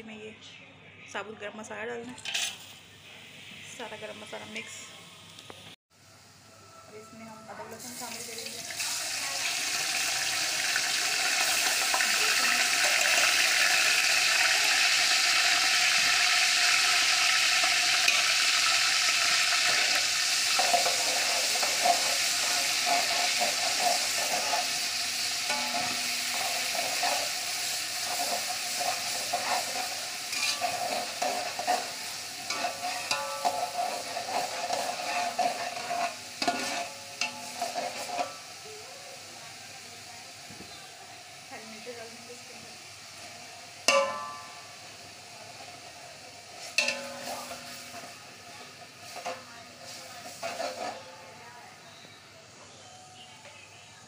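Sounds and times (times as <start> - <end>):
metal spoon scraping a pot: 2.2 - 2.7, 15.3 - 38.5, 46.6 - 48.1, 49.0 - 51.3
paste sizzling in hot oil: 7.7 - 52.1.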